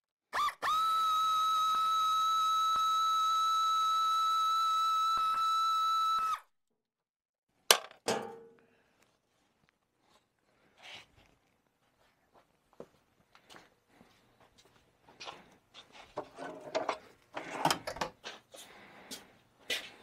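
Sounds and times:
faint handling sounds: 8.6s - 20.0s.

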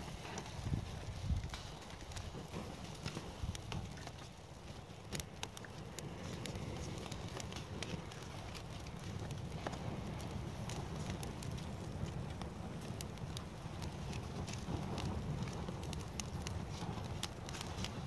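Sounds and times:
twigs crackling and snapping: 0.1s - 18.0s.

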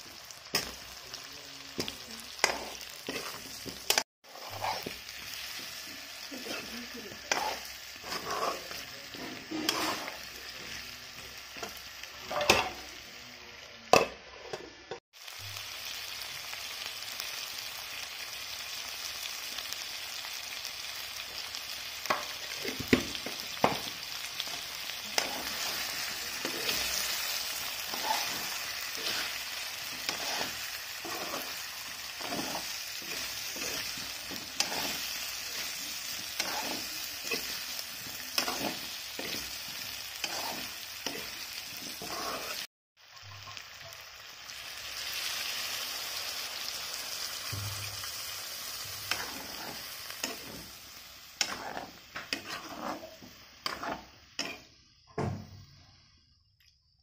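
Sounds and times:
food sizzling in hot oil: 0.0s - 56.2s
spatula scraping a pan: 1.8s - 10.8s, 11.6s - 12.8s, 22.1s - 42.7s, 48.1s - 54.7s.

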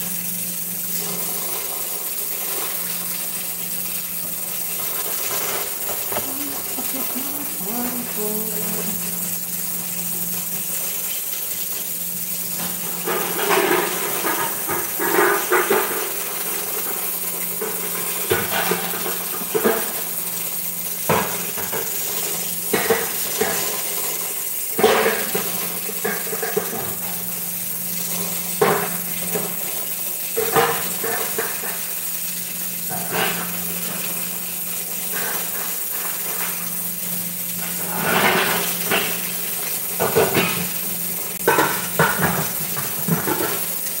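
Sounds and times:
dishes and utensils clattering: 41.4s - 43.7s.

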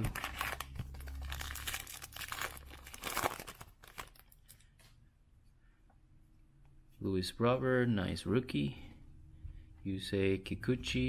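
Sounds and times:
wrapper crinkling and tearing: 0.0s - 4.6s.

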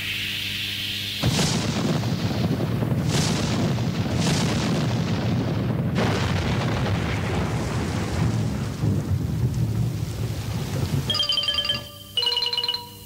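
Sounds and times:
sharp crash: 1.2s - 6.7s
deep rumble: 1.2s - 11.1s.

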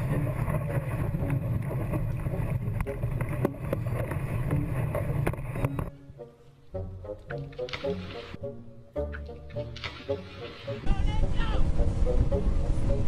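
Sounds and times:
wind buffeting microphone: 10.8s - 13.0s.

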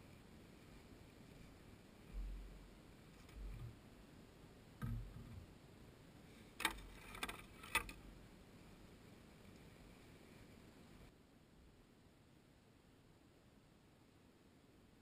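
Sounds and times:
dull low thumps: 2.1s - 2.7s, 4.8s - 5.5s.

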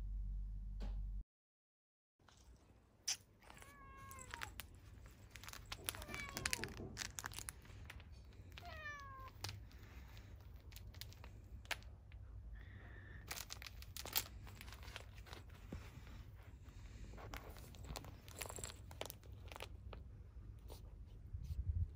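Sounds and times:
cat meowing: 3.4s - 4.7s, 5.7s - 7.0s, 8.5s - 9.4s.

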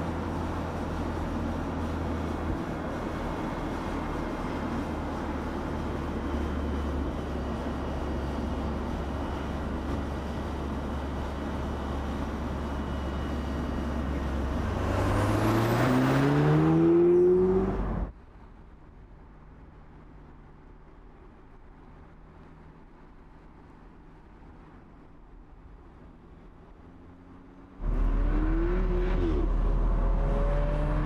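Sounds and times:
road noise: 0.0s - 31.0s
car engine accelerating: 13.8s - 18.1s, 26.9s - 31.0s.

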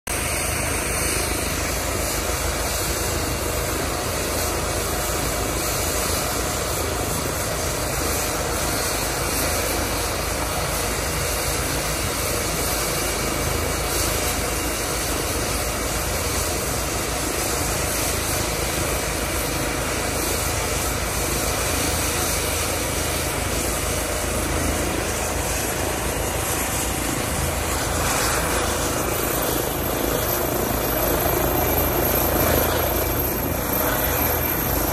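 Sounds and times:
helicopter turbine whine and rotor: 0.1s - 34.9s.

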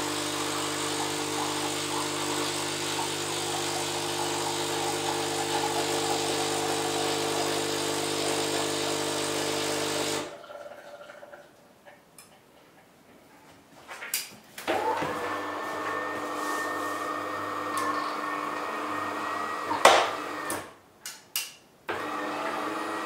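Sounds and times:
espresso pump buzzing with hiss: 0.0s - 10.3s, 14.8s - 20.6s.

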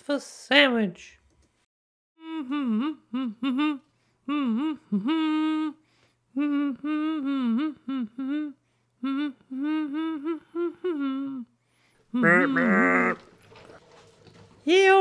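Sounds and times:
person humming a tune: 2.2s - 13.2s.

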